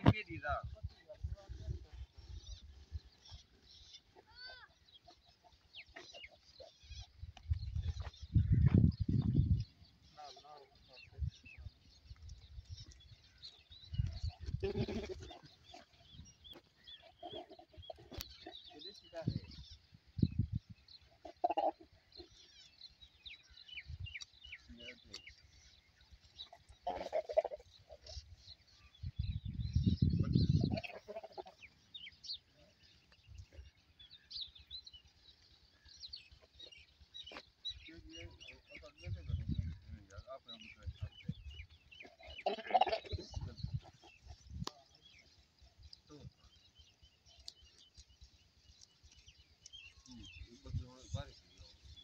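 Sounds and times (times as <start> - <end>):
small birds chirping: 0.0 - 52.0
goat calling: 14.2 - 15.9, 21.2 - 22.0, 26.5 - 28.3, 30.4 - 31.8, 42.0 - 43.9
goat bleating: 14.4 - 15.5, 30.5 - 31.6, 42.2 - 43.3.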